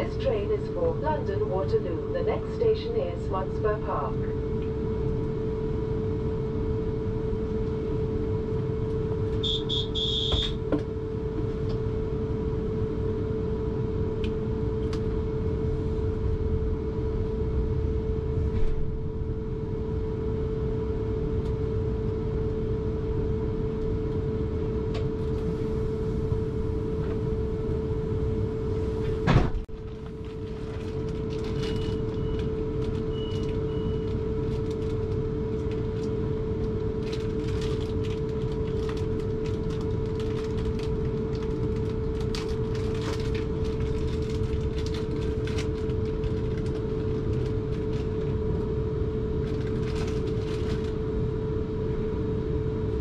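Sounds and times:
low rumble: 0:00.0 - 0:53.0
train electrical hum: 0:00.0 - 0:53.0
high warning beeps: 0:09.4 - 0:10.6.

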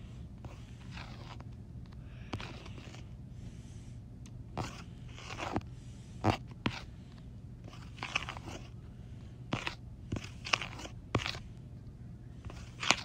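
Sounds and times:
stylus scratching on glass screen: 0:00.0 - 0:01.6, 0:02.3 - 0:03.1, 0:04.5 - 0:07.0, 0:07.6 - 0:08.8, 0:09.5 - 0:11.6, 0:12.4 - 0:13.0
low steady hum: 0:00.0 - 0:13.0.

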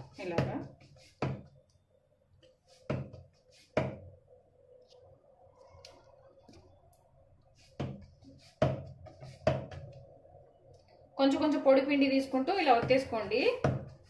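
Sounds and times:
hands patting dough: 0:00.0 - 0:01.7, 0:02.6 - 0:04.0, 0:07.6 - 0:10.1
faint steady hum: 0:04.0 - 0:14.0.

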